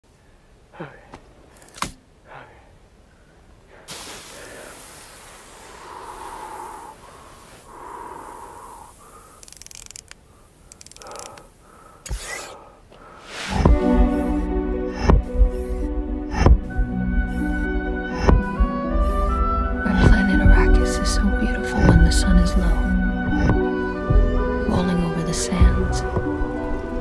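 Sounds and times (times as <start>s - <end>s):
sharp click: 1.6s - 2.0s
sandy hiss: 3.7s - 19.7s.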